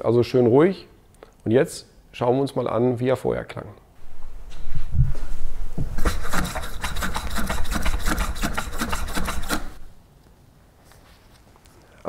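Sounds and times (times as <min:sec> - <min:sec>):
bike shock clicking and rasping: 0:06.0 - 0:09.9.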